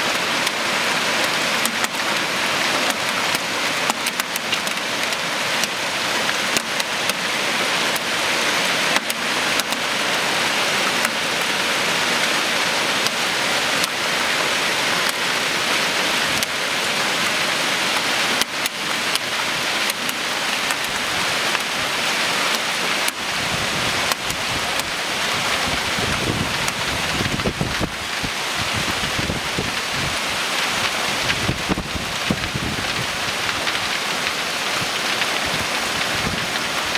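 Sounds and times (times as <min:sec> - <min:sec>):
heavy rain pouring: 0:00.0 - 0:36.9
hailstones clicking: 0:00.1 - 0:00.6, 0:01.2 - 0:08.2, 0:08.8 - 0:10.1, 0:13.0 - 0:13.2, 0:13.8 - 0:14.0, 0:16.2 - 0:16.6, 0:17.9 - 0:23.3, 0:24.0 - 0:36.9.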